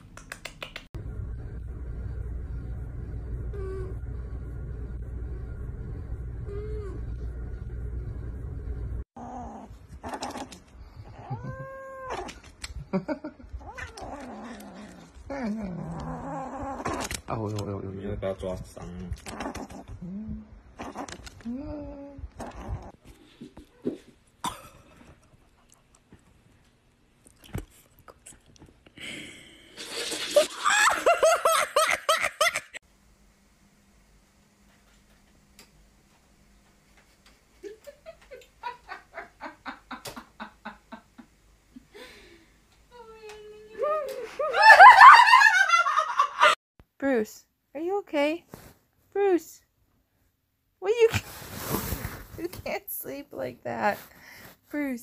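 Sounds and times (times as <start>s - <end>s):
steady low hum: 1.0s - 11.2s
kitten mewing and crying: 11.2s - 12.3s
person laughing hard: 30.5s - 32.8s, 44.3s - 46.6s.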